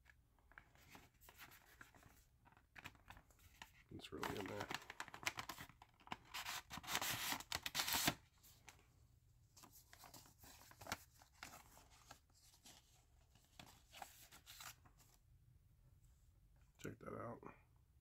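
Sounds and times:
paper sleeve rustling: 0.5 - 8.8, 9.6 - 15.1
paper packaging tearing: 4.1 - 8.2.

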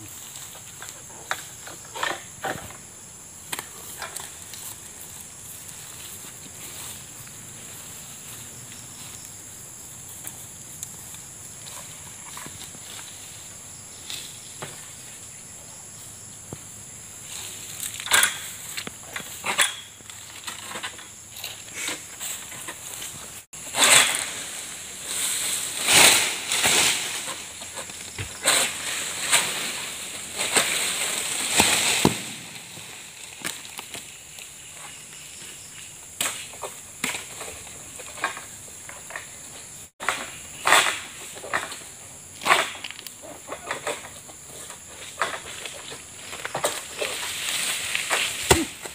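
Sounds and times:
high insect drone: 0.0 - 48.9
palm fronds scraping and rustling: 3.4 - 15.2, 17.2 - 48.9
sickle hacking palm crown: 46.8 - 48.9.

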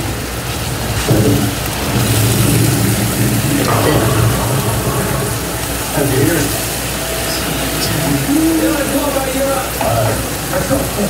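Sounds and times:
loud low hum: 2.0 - 8.4.

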